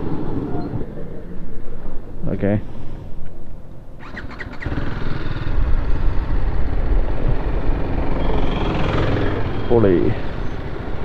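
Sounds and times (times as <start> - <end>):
motorcycle engine revving: 4.0 - 11.0.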